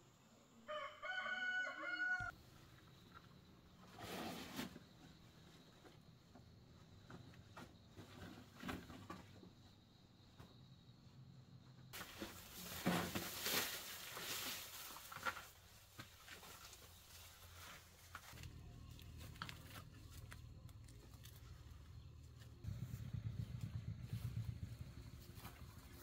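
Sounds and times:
rustling grass and leaves: 12.0s - 26.0s.

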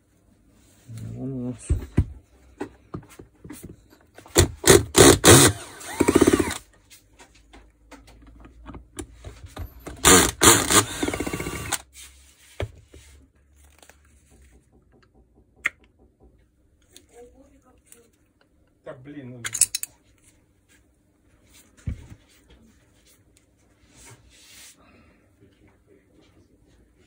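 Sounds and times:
cordless drill whirring: 4.3s - 6.6s, 9.9s - 11.8s
metal parts clicking: 19.4s - 20.0s.

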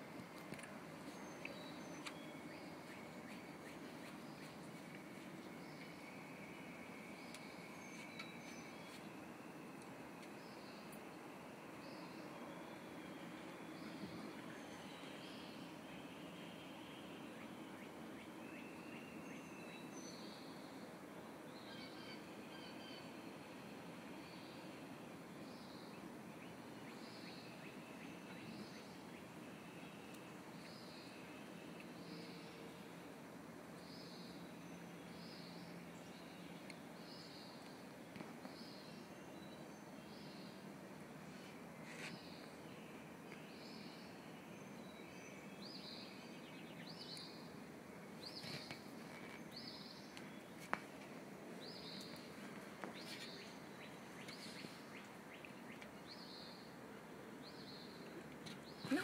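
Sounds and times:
low steady hiss: 0.0s - 59.0s
bird chirping: 1.0s - 9.7s, 10.3s - 20.8s, 21.5s - 23.2s, 25.4s - 32.8s, 51.6s - 56.7s.

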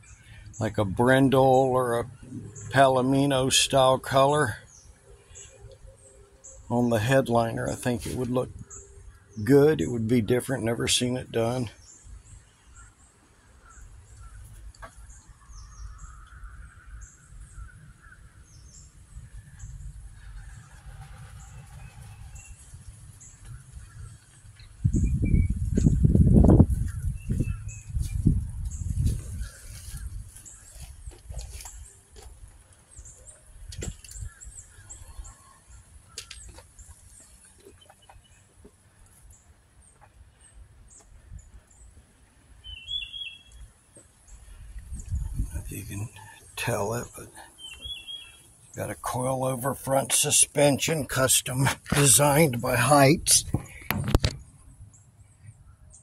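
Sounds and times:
distant bird calls: 0.0s - 56.0s
footsteps: 26.6s - 32.7s.

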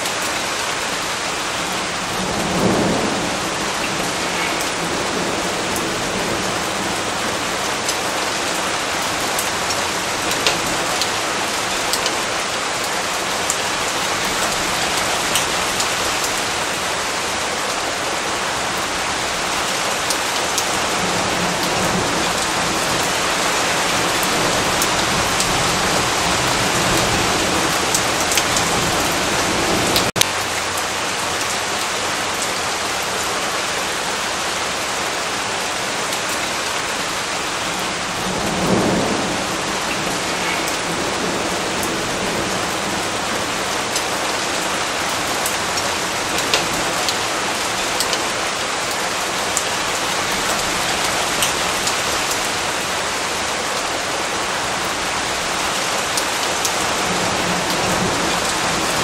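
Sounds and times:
heavy rain falling: 0.0s - 59.0s
thunder rumbling: 1.5s - 17.4s, 18.5s - 30.5s, 37.5s - 48.0s.

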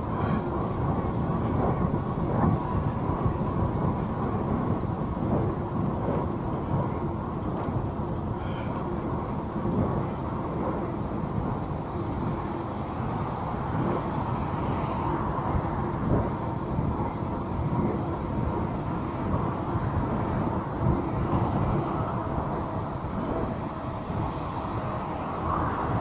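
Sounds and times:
bike tyres rolling on pavement: 0.0s - 26.0s
wind on microphone: 0.0s - 26.0s
cars passing: 6.5s - 26.0s.

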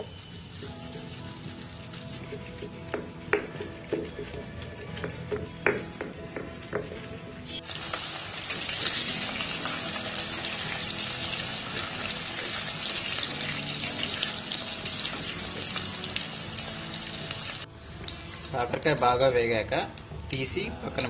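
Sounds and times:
faint background music: 0.0s - 21.0s
vegetables sizzling in hot oil: 7.5s - 20.6s.

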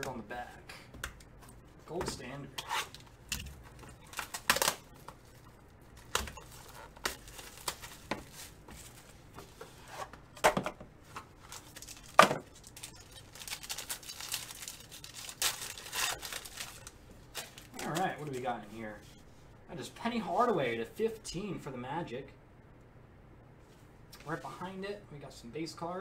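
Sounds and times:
packaging crinkling: 6.0s - 9.2s, 11.4s - 18.5s
cardboard and foil ripping: 6.1s - 8.6s, 11.5s - 18.5s.

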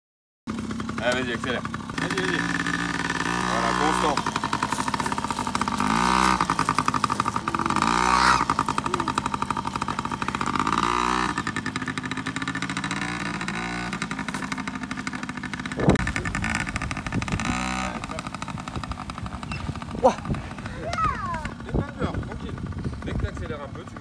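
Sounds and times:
two-stroke mini bike engine revving: 0.5s - 24.0s.

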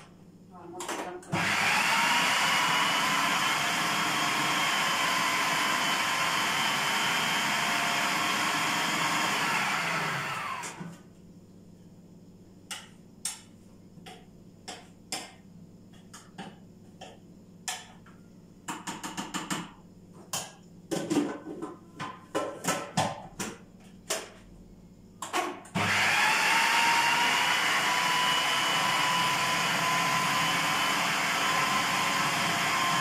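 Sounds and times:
food processor motor whine: 1.3s - 11.0s, 25.7s - 33.0s.

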